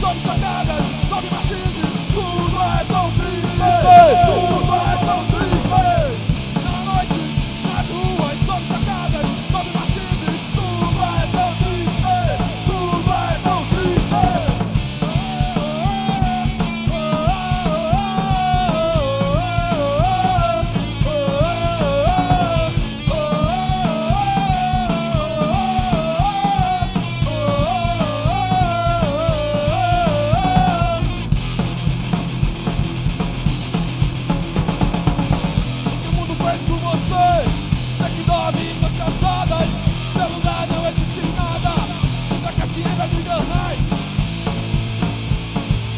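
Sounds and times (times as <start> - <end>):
live hardcore punk band: 0.0 - 45.9
wavering guitar lead line: 2.9 - 7.2.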